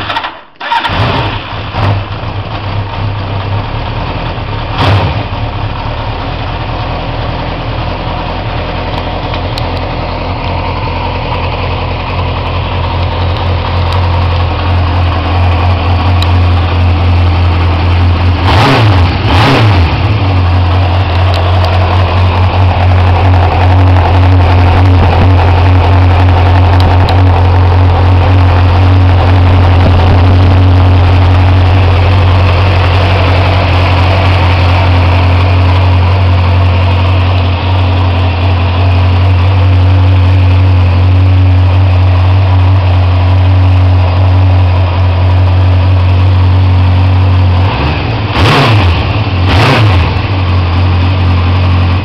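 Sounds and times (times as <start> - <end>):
engine revving: 0.0 - 2.2, 4.7 - 5.4, 13.8 - 52.0
motorcycle engine idling: 1.5 - 48.4, 49.0 - 52.0.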